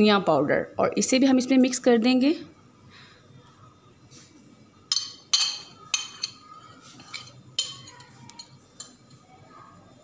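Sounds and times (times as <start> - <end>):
spoon clinking glass bowl: 4.9 - 9.1.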